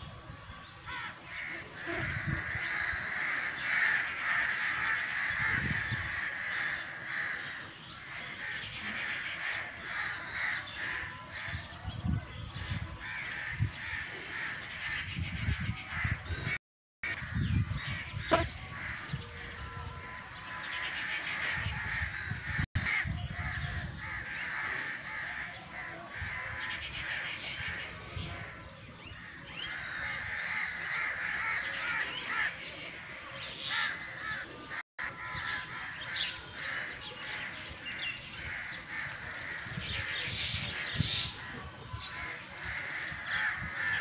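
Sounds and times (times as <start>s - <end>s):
crows cawing: 0.9s - 11.5s, 29.4s - 44.0s.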